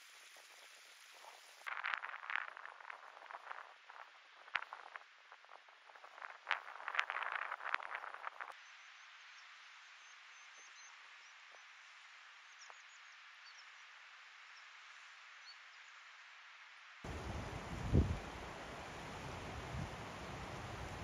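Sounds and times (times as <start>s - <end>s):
faint bird chirps: 12.4s - 13.9s
distant river rushing: 17.1s - 21.0s
wind buffeting microphone: 17.1s - 21.0s.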